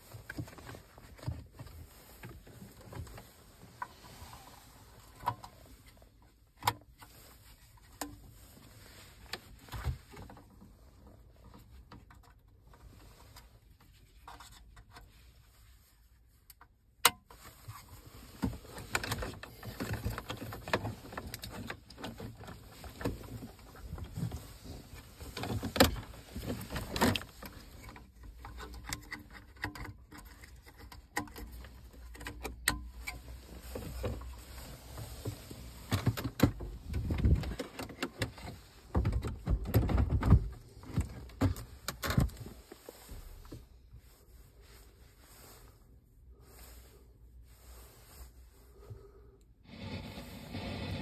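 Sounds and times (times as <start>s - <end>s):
knocks and scrapes: 46.4s - 51.0s.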